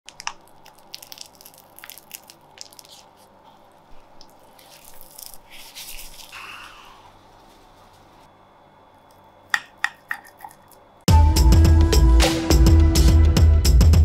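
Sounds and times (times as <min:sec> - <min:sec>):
plastic wrap crinkling: 0:00.1 - 0:06.6.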